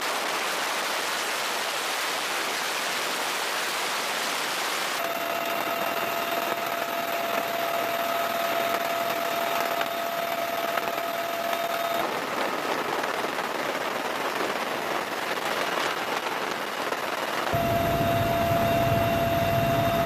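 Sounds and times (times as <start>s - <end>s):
steady whine: 5.0s - 12.0s, 17.5s - 20.0s
engine roar: 17.6s - 20.0s.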